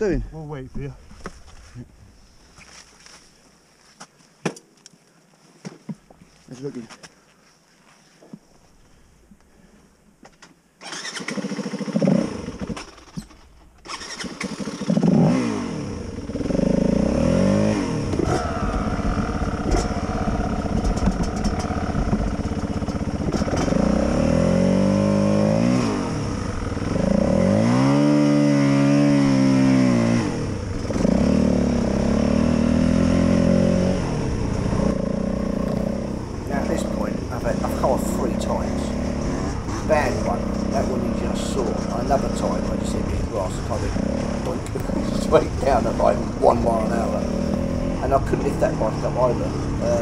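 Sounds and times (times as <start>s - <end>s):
dirt bike engine revving: 10.8s - 50.0s.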